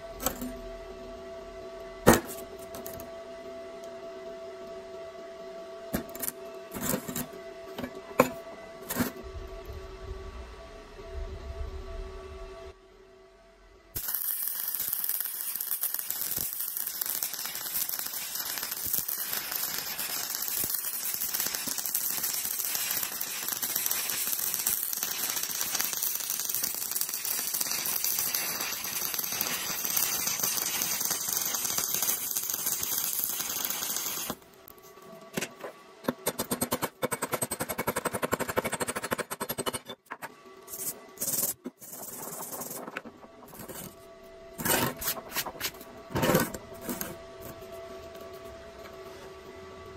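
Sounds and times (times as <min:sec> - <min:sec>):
welding arc crackling: 0:14.0 - 0:34.5.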